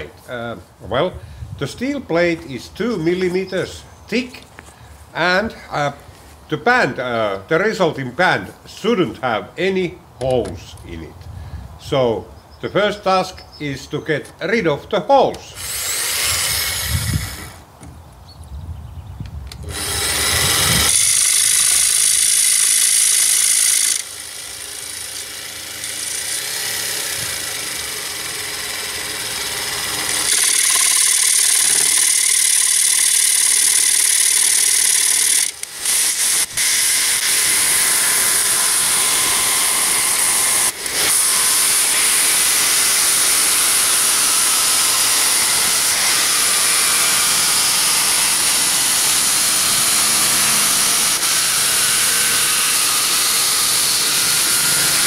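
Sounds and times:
jigsaw cutting steel plate: 15.6 - 17.6, 19.6 - 55.0.

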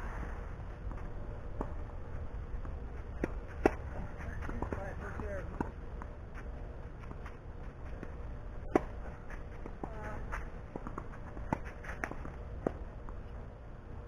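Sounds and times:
tennis ball hit by racket: 3.2 - 4.9, 8.6 - 9.0.

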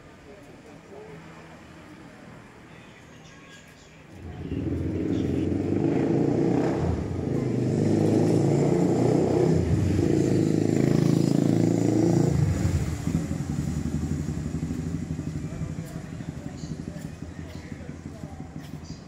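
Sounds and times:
motorcycle engine running: 4.2 - 19.0.

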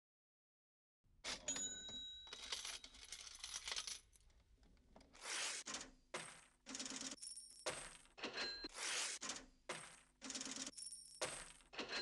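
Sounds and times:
coins dropping and clinking: 1.3 - 4.2.

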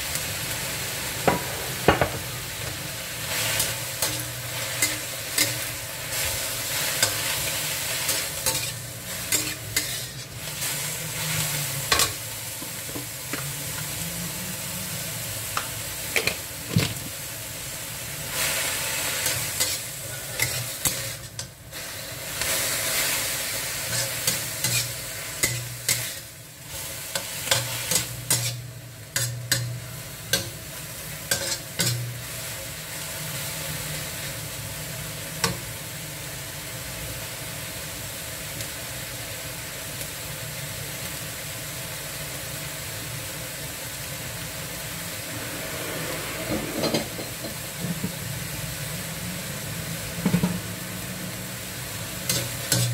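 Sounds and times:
greens sizzling in a wok: 0.0 - 52.9
metal spatula scraping a pan: 3.2 - 12.2, 19.2 - 21.4, 23.8 - 30.6, 31.3 - 32.2, 45.3 - 48.0, 52.3 - 52.9.

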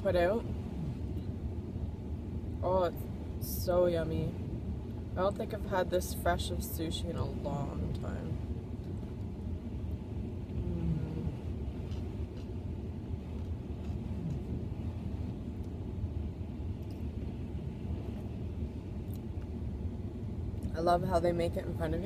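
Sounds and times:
car cabin rumble: 0.0 - 22.0
faint chewing: 10.9 - 14.6.

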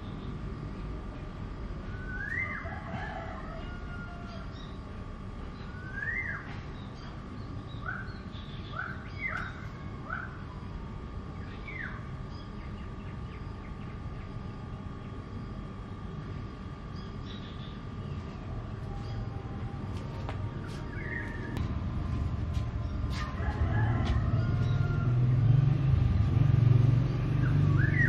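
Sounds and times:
low background rumble: 0.0 - 28.0
birds chirping: 20.6 - 25.0, 26.0 - 28.0.

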